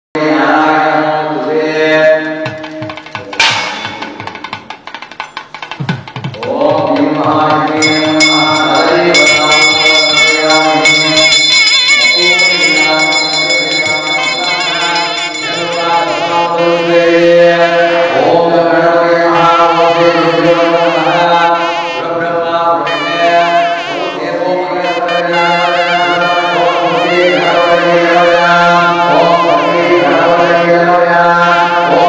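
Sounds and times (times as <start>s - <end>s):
devotional chanting: 0.2s - 5.3s, 5.9s - 32.0s
drums and percussion: 2.2s - 16.7s
sharp percussion strike: 2.5s - 16.6s.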